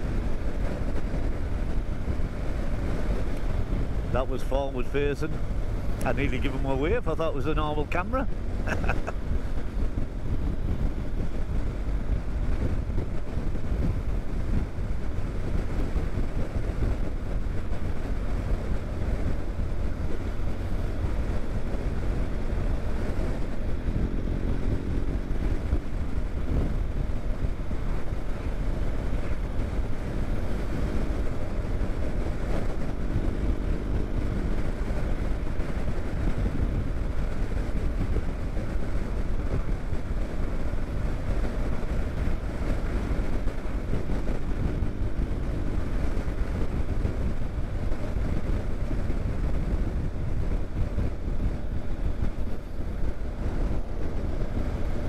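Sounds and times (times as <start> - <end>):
motorcycle engine drone: 0.0 - 55.0
wind rushing over microphone: 0.0 - 55.0.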